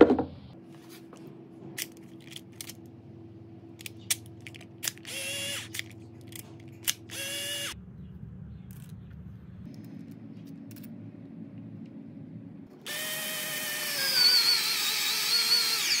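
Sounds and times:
cordless screwdriver motor spinning: 0:04.8 - 0:07.8, 0:12.9 - 0:16.0.

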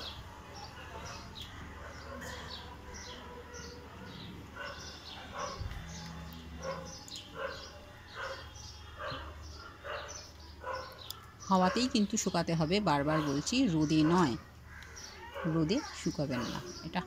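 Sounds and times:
dog barking: 0:01.8 - 0:05.7, 0:06.6 - 0:11.0, 0:13.1 - 0:14.4, 0:15.2 - 0:15.7, 0:16.3 - 0:16.7.

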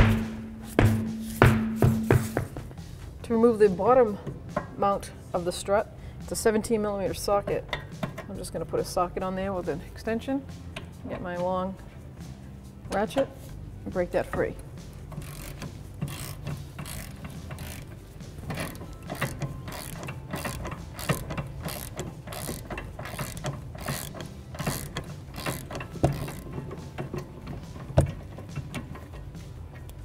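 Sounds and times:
loud knocks: 0:00.0 - 0:02.6
ratchet wrench clicking: 0:15.0 - 0:30.0.

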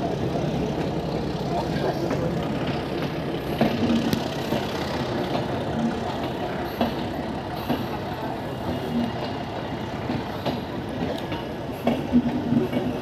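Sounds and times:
train rumbling over tracks: 0:00.0 - 0:13.0
wheels clicking over rail joints: 0:00.0 - 0:13.0.

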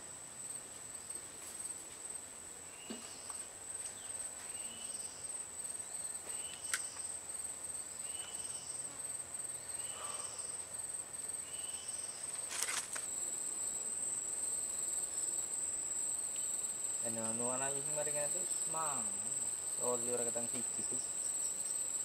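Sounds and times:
insect drone: 0:00.0 - 0:22.0
brief rustle: 0:12.3 - 0:13.1.

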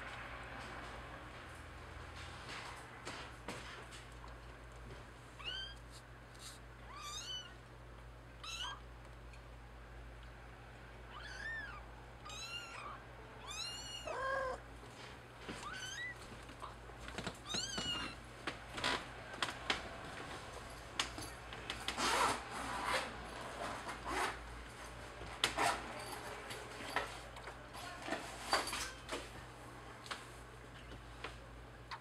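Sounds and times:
kittens mewing: 0:11.1 - 0:14.7.

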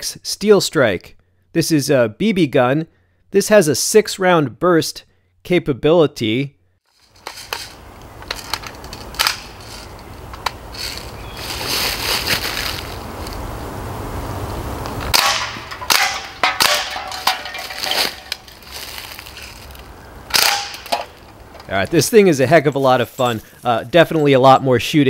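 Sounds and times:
air rifle shots: 0:20.3 - 0:21.1.

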